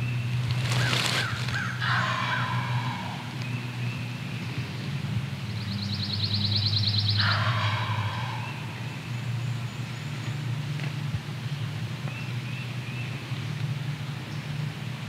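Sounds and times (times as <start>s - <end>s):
turkey gobbling: 0.6s - 3.4s, 7.2s - 8.8s.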